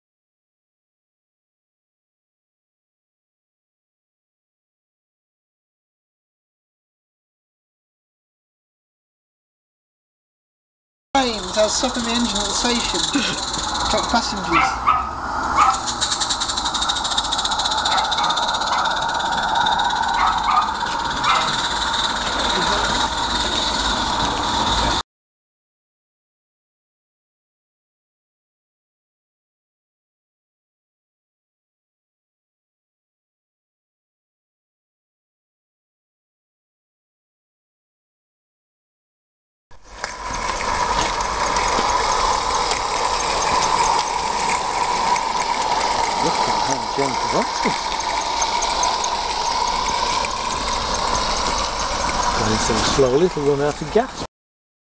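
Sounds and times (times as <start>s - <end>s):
steam hissing: 11.2s - 25.0s, 40.0s - 54.3s
steam locomotive chuffing: 11.2s - 25.0s, 40.2s - 54.2s
clicks from wheels: 15.6s - 25.0s.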